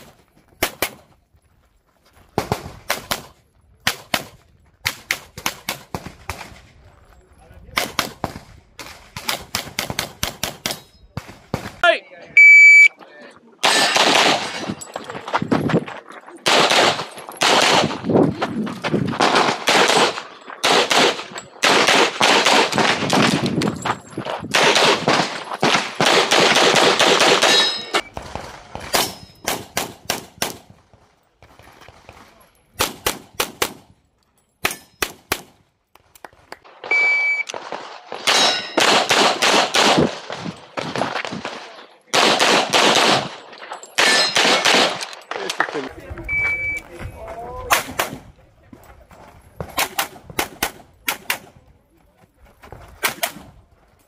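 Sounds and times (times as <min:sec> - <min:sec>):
short electronic beep: 0:12.4 - 0:13.0, 0:36.9 - 0:37.5, 0:46.2 - 0:46.9
metallic clangs: 0:43.6 - 0:44.5.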